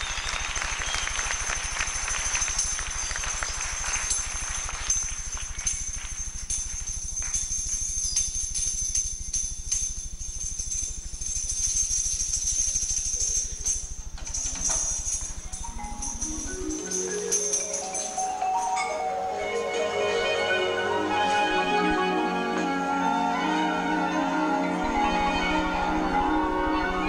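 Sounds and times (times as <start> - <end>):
music with jingling bells: 0.0 - 27.0
pitched notes stepping upward: 15.7 - 27.0.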